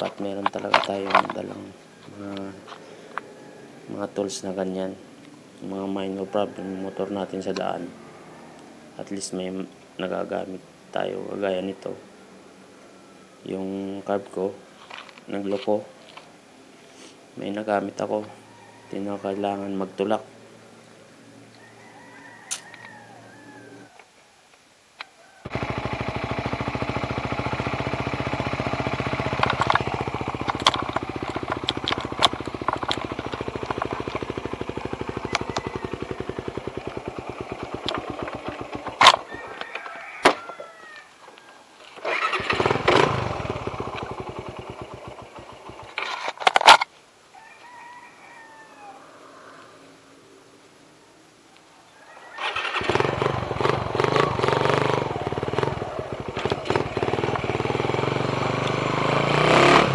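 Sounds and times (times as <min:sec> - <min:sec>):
motorcycle engine running: 0:25.5 - 0:39.3, 0:42.0 - 0:46.0, 0:52.5 - 0:59.9
sharp clicks: 0:29.2 - 0:34.4.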